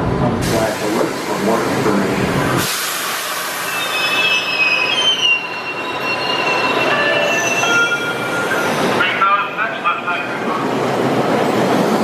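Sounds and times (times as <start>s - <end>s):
train wheels squealing: 3.3s - 9.0s.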